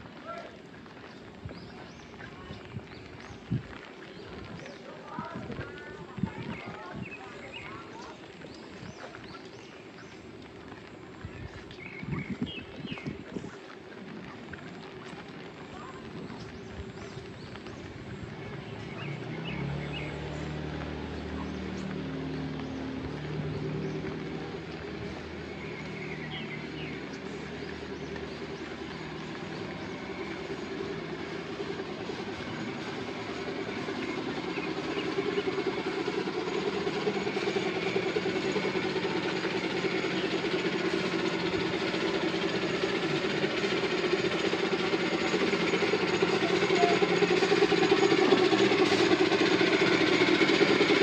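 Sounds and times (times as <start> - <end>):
engine running: 0.0 - 51.0.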